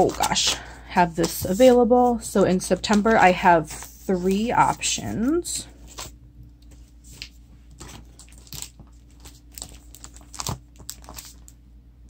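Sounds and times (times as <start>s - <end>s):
plastic sleeves crinkling: 0.0s - 1.9s, 7.0s - 11.6s.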